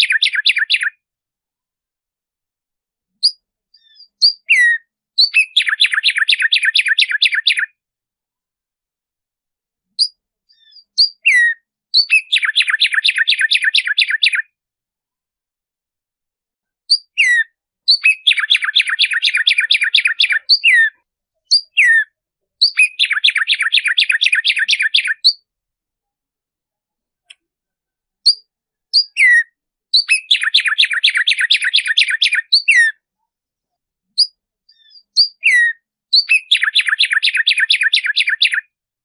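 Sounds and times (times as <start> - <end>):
sparrow singing trills: 0.0 - 1.0, 3.1 - 7.8, 9.9 - 14.5, 16.8 - 25.5, 28.2 - 33.1, 34.1 - 38.8.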